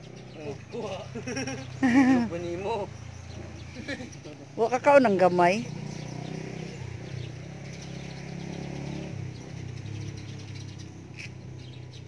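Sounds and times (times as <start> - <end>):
faint bird chirps: 0.0 - 5.0.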